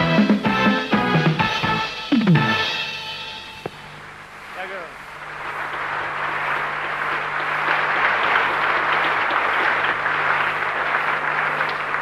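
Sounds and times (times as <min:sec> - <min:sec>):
audience applauding: 0:05.1 - 0:12.0.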